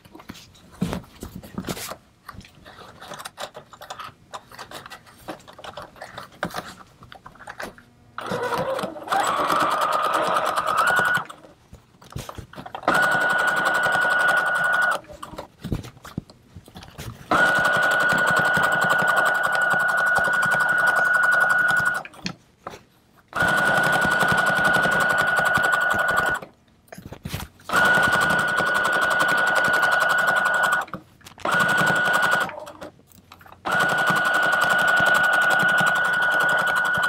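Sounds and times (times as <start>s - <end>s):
sewing machine whine: 8.2s - 11.4s, 12.8s - 15.1s, 17.3s - 22.1s, 23.4s - 26.4s, 27.7s - 32.9s, 33.7s - 37.0s.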